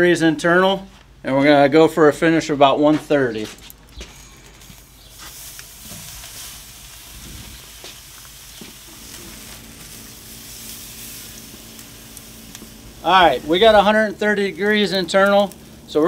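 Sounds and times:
meat sizzling on grill: 0:04.1 - 0:16.0.

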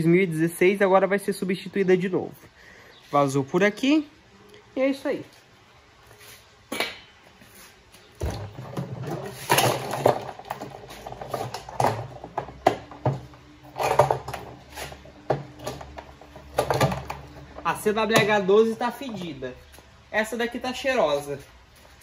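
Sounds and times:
low steady hum: 0:00.0 - 0:22.0
hard machine parts clattering: 0:08.2 - 0:18.4.

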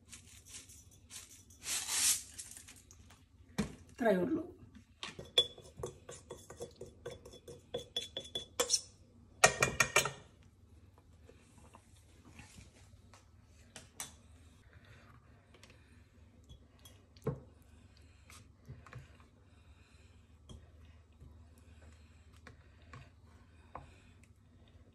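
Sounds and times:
metal spoon clinking on jars: 0:05.2 - 0:08.8.

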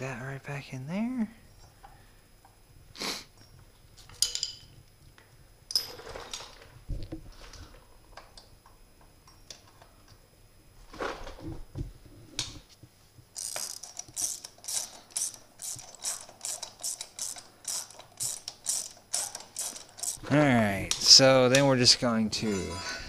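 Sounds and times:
ratchet wrench clicking: 0:13.4 - 0:20.2.

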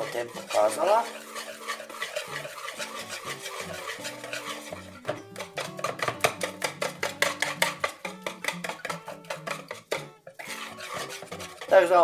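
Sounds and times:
whisk beating batter in bowl: 0:00.0 - 0:12.0.

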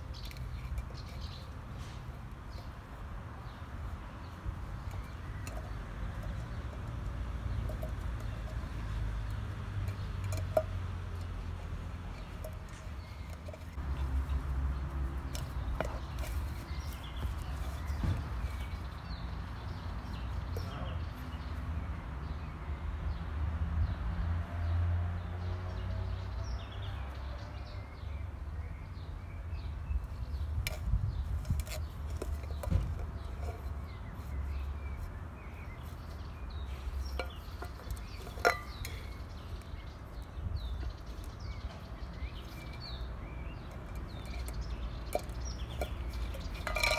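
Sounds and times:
birds chirping: 0:00.0 - 0:46.9
puppy chewing a tin can: 0:04.6 - 0:18.9, 0:30.6 - 0:34.2, 0:36.7 - 0:39.6, 0:42.4 - 0:46.9.

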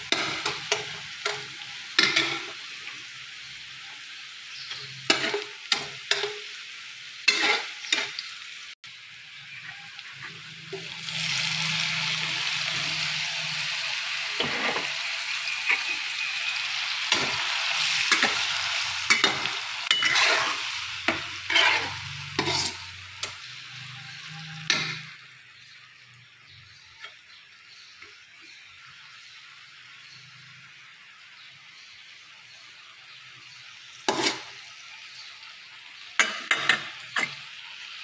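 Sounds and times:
spatula scraping a wok: 0:00.0 - 0:08.3, 0:09.4 - 0:25.3, 0:33.9 - 0:34.7
garlic frying in oil: 0:00.0 - 0:38.0
loud sizzle of tomatoes frying: 0:00.0 - 0:38.0.

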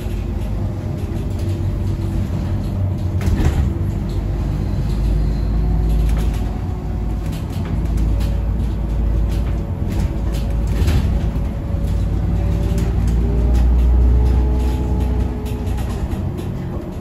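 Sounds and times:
bus drivetrain and road rumble: 0:00.0 - 0:17.0
rattles: 0:00.0 - 0:17.0.

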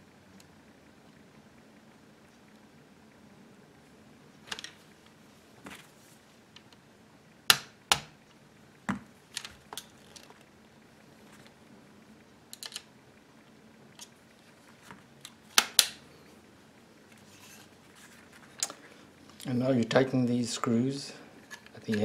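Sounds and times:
metal parts clicking and clacking: 0:12.5 - 0:12.9.

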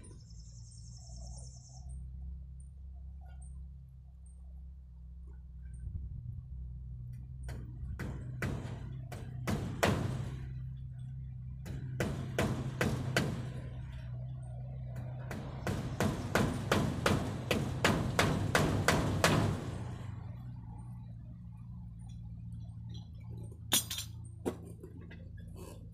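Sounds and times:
hammer driving nails into wood: 0:11.6 - 0:13.5.

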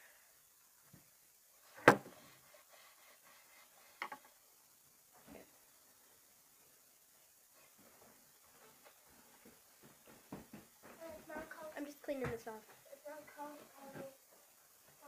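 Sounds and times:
objects knocking on hard surface: 0:01.8 - 0:02.2.

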